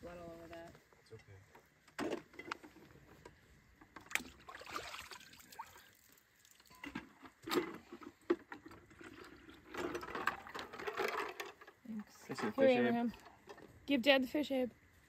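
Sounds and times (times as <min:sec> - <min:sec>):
water splashing in bucket: 0:04.0 - 0:06.7.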